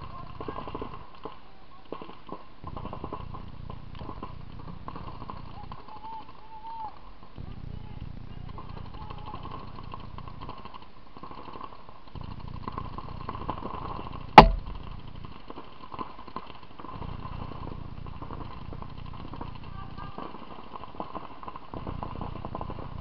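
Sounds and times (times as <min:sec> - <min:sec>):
faint paintball marker pops: 0:14.4 - 0:14.9
loud sharp crack: 0:14.4 - 0:14.9.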